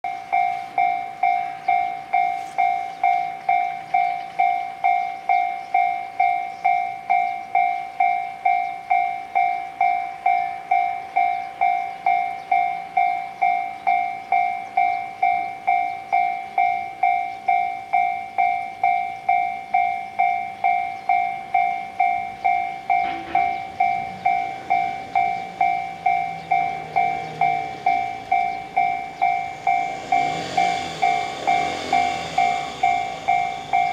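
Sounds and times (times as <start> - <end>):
level-crossing warning bell: 0.0 - 33.9.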